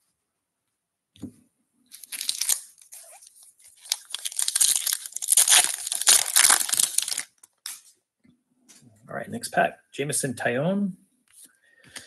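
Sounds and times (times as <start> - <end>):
wrapper tearing and crinkling: 1.9 - 7.8.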